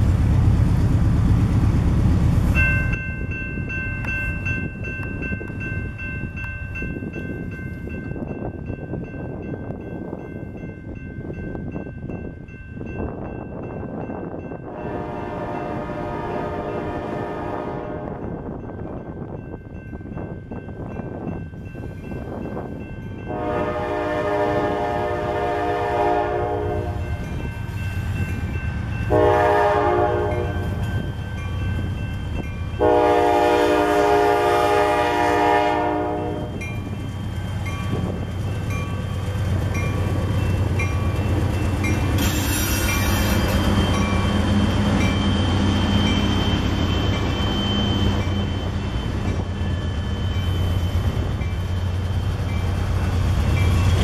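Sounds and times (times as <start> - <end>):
diesel locomotive engine rumble: 0.0 - 54.0
crossing bell dinging: 2.6 - 54.0
locomotive air horn blasts: 14.7 - 18.2, 23.3 - 27.0, 29.1 - 30.8, 32.8 - 36.6
train wheels clattering on rails: 36.4 - 54.0.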